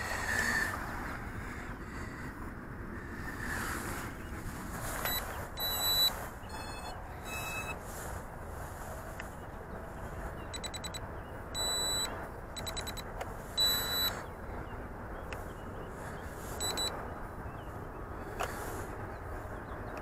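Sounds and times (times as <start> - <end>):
short high electronic beeps: 5.1 - 7.8, 10.6 - 11.0, 11.6 - 13.0, 13.6 - 14.2, 16.6 - 16.9.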